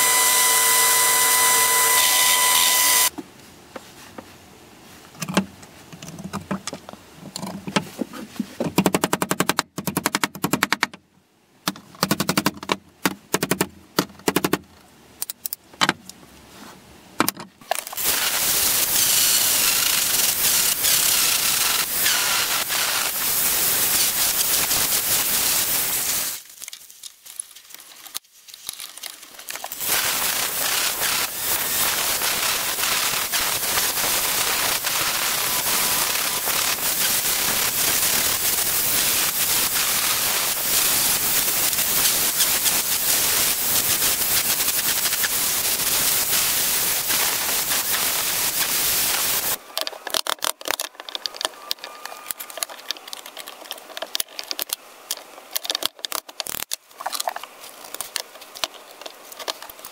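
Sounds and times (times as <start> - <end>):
angle grinder grinding steel: 0.0 - 3.1
small parts clicking and tapping: 15.2 - 15.9, 47.1 - 59.9.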